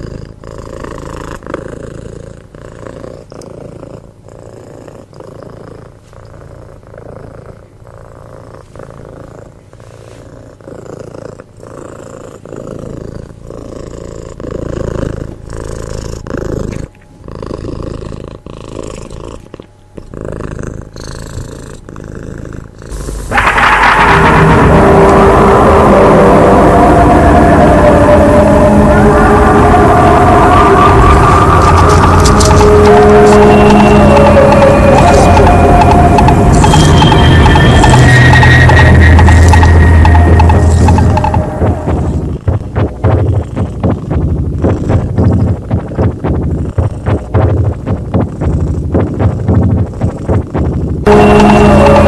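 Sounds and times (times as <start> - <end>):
cat purring: 0.0 - 23.2, 41.9 - 51.1
loud droning hum: 22.9 - 52.0.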